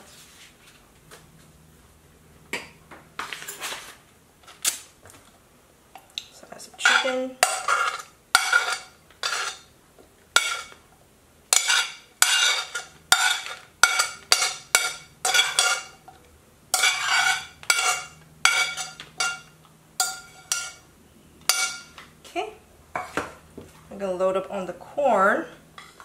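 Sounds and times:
metal spoon scraping ceramic plate: 6.8 - 9.7, 10.4 - 10.8, 11.5 - 16.0, 16.8 - 20.8.

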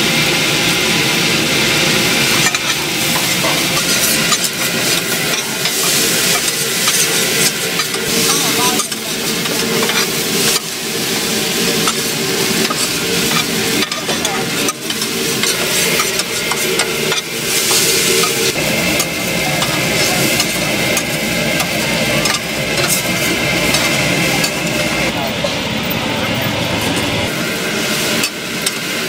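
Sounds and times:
rice sizzling on a griddle: 0.0 - 25.1, 27.3 - 29.0
metal spatula scraping steel: 2.4 - 10.8, 11.6 - 24.7.

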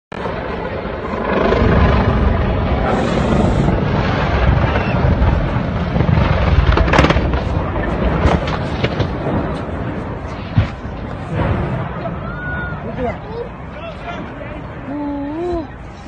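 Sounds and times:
loud steady rumbling: 0.1 - 16.0
sharp cracks and pops: 6.0 - 9.7.

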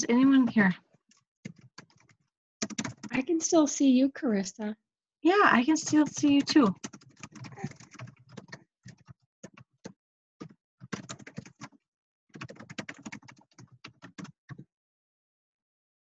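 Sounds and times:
keyboard typing: 1.4 - 3.3, 5.3 - 14.7.

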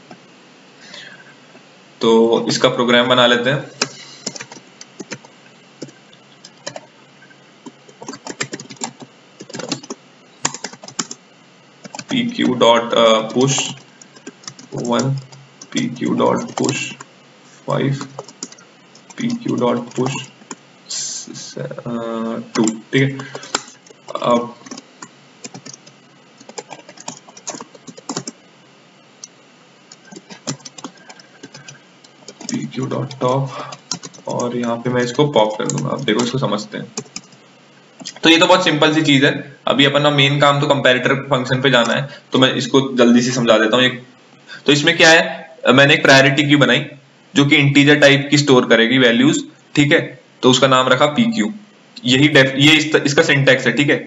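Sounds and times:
computer keyboard typing: 3.8 - 6.9, 7.6 - 11.2, 11.8 - 17.1, 17.7 - 20.6, 22.5 - 28.4, 29.9 - 37.4.

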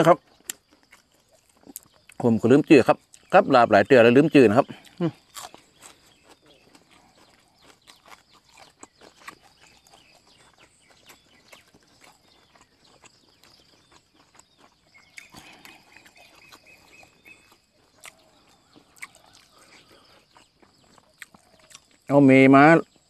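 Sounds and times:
wet mouth chewing: 0.2 - 2.2, 2.9 - 3.3, 4.6 - 22.1.

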